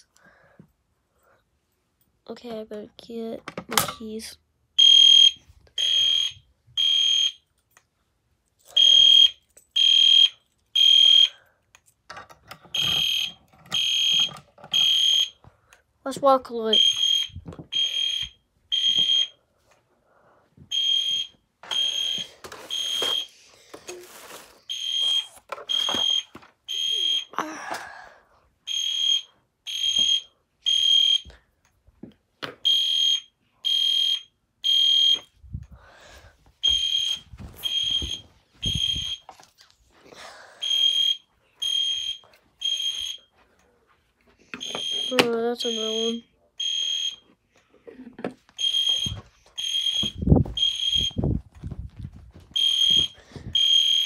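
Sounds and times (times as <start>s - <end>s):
fire alarm beeps: 4.8s - 7.5s, 8.7s - 11.4s, 12.7s - 15.4s, 16.7s - 19.4s, 20.7s - 23.4s, 24.7s - 27.4s, 28.7s - 31.4s, 32.6s - 35.3s, 36.6s - 39.3s, 40.6s - 43.3s, 44.6s - 47.3s, 48.6s - 51.3s, 52.6s - 54.0s.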